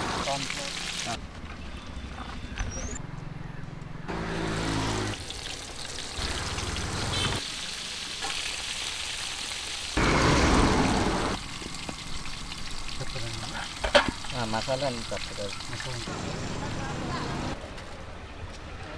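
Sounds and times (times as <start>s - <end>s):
hot oil sizzling: 0.0s - 1.2s, 4.4s - 16.8s.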